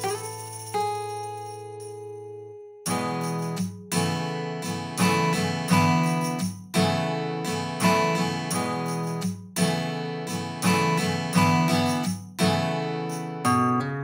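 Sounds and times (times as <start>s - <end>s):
strummed acoustic guitar chords: 2.9s - 14.0s.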